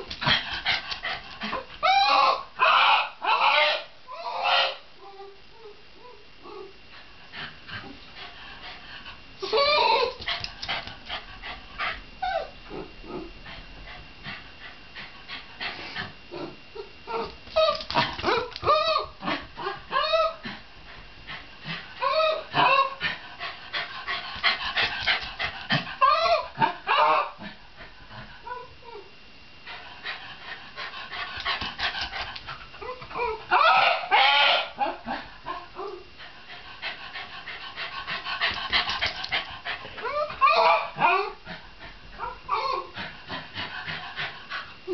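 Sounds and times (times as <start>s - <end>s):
dog whining and yelping: 0.3s - 6.8s, 9.4s - 10.9s, 12.2s - 13.4s, 15.9s - 20.6s, 22.0s - 23.1s, 24.4s - 27.4s, 31.4s - 36.1s, 38.4s - 41.6s, 42.2s - 43.1s.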